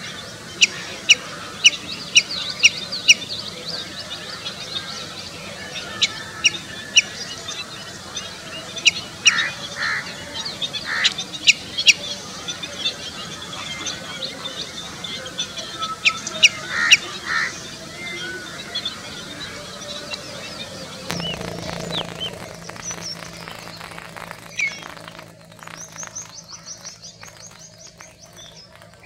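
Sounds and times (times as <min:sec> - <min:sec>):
faint high twittering: 0:21.1 - 0:29.0.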